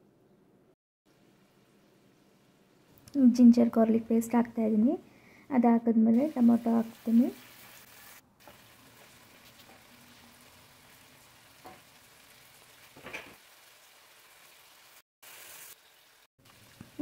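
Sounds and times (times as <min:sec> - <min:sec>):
curry sizzling in a pan: 0:06.1 - 0:17.0.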